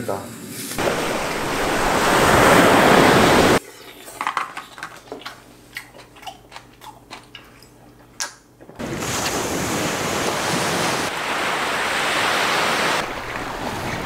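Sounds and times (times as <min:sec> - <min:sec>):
waves breaking on a beach: 0:00.8 - 0:03.6, 0:08.8 - 0:14.0.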